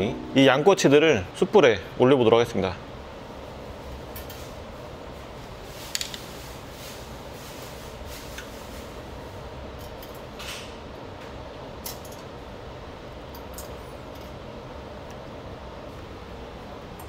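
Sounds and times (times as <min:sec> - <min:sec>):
low hum: 0:00.0 - 0:01.5.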